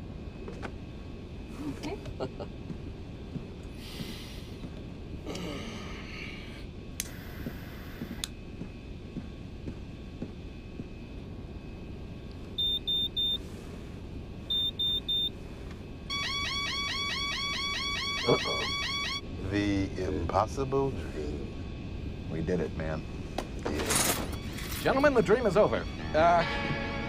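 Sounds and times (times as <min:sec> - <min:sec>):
aircraft cabin drone: 0:00.0 - 0:27.0
cockpit warning alarm beeps: 0:12.6 - 0:13.5, 0:14.5 - 0:15.4, 0:16.1 - 0:19.3, 0:24.3 - 0:26.3.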